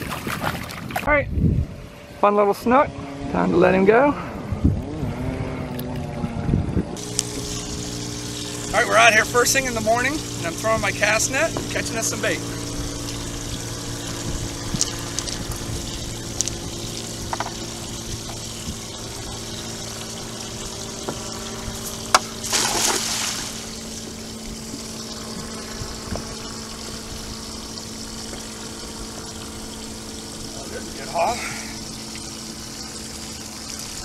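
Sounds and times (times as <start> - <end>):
low mechanical hum: 0.0 - 34.0
cast net splashing into water: 22.1 - 23.8.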